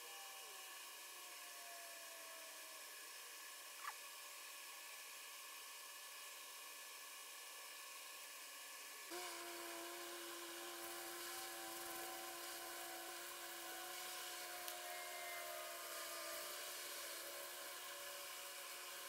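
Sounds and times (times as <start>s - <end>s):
faint machine hum: 0.0s - 19.0s
high hiss: 9.0s - 19.0s.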